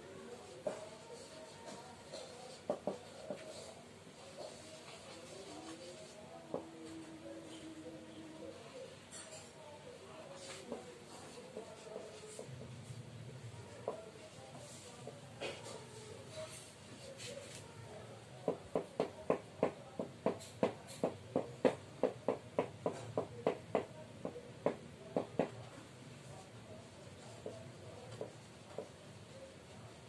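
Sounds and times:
marker tapping on whiteboard: 2.2 - 3.6, 18.5 - 25.6, 27.4 - 29.0.

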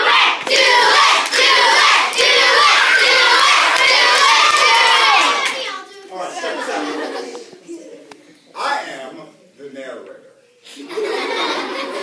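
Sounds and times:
children shouting together: 0.0 - 6.8.

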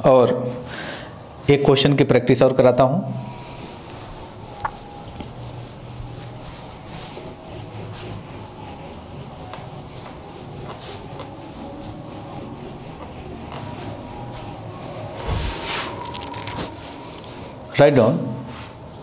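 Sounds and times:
eraser wiping whiteboard: 3.2 - 17.5.

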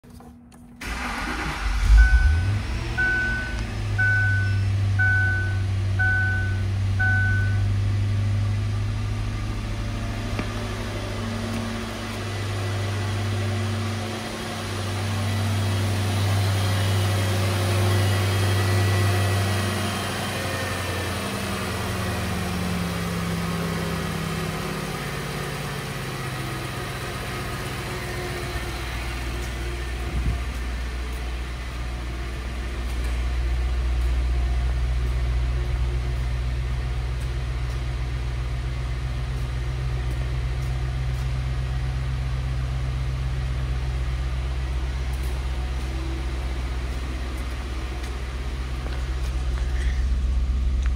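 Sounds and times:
car engine starting and idling: 0.1 - 50.9
car warning chime beeps: 1.8 - 7.7.

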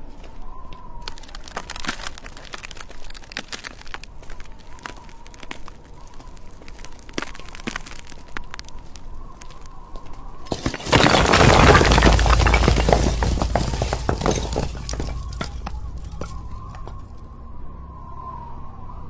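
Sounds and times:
brick wall cracking: 1.0 - 8.8, 10.4 - 17.1
brick wall crashing down: 10.5 - 17.0
bricks clattering: 10.5 - 17.1.

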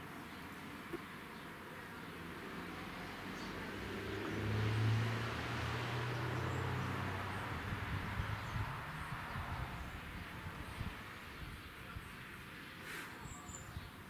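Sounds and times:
vehicle passing: 2.2 - 11.3.

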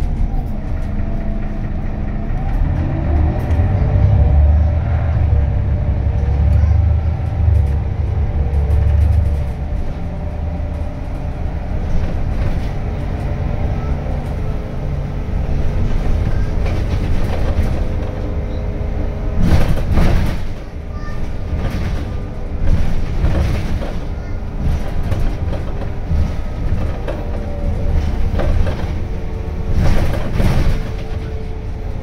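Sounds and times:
bus engine drone: 0.0 - 32.0
road noise: 0.0 - 32.0
knocking and clatter: 15.6 - 18.4, 19.4 - 31.6.

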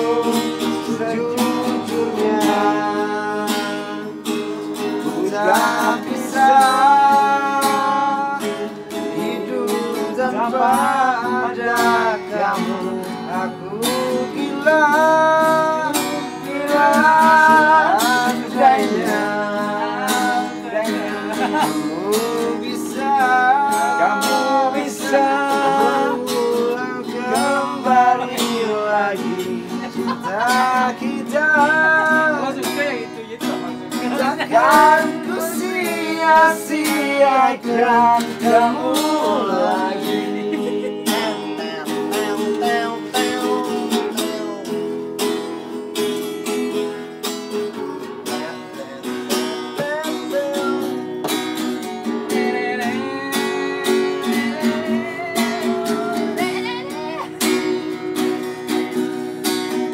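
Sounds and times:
man singing: 0.0 - 59.0
acoustic guitar: 0.0 - 59.9.

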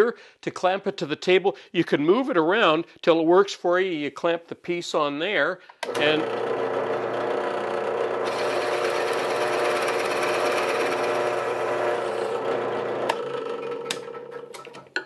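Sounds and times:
drill press boring into wood: 5.8 - 14.9.

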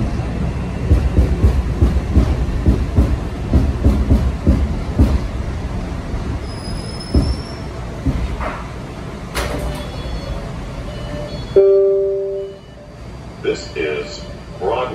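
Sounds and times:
subway train rumbling: 0.0 - 14.9
doors sliding open: 5.2 - 11.7
high brake squeal: 6.4 - 7.8, 9.6 - 14.7.

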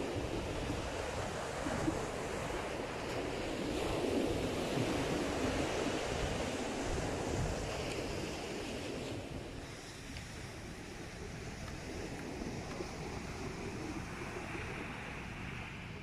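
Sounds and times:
waves breaking on shore: 0.0 - 16.0
wind rumbling on microphone: 0.0 - 16.0.

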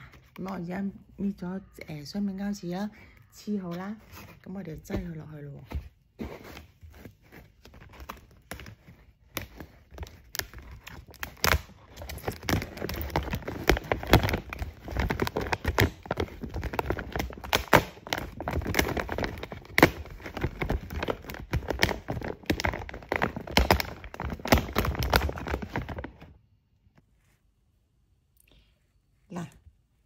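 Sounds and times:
plastic sack crinkling: 6.8 - 26.4.

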